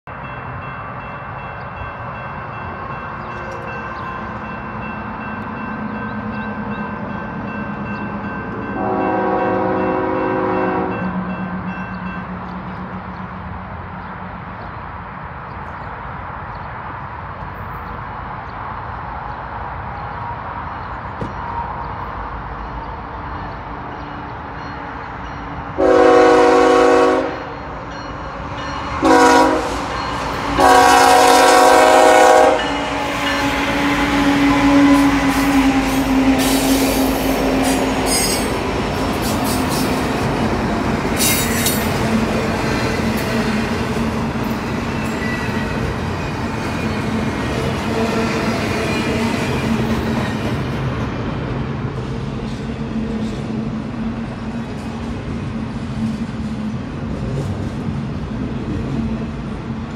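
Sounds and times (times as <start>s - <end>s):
locomotive horn blasts: 8.7s - 11.2s, 25.8s - 27.6s, 29.0s - 29.8s, 30.5s - 37.1s
train wheels clattering on rails: 35.0s - 59.9s.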